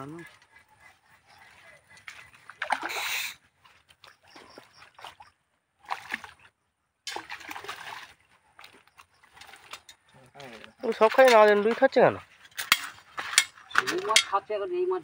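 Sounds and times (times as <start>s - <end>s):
water sloshing in net: 1.5s - 6.5s, 7.1s - 12.3s
fish splashing at water surface: 2.1s - 6.5s, 7.1s - 9.8s.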